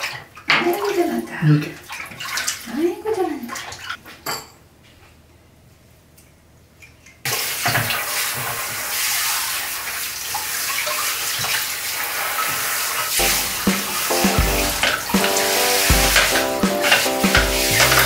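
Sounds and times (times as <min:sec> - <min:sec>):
shower head spraying water: 0:12.6 - 0:18.0.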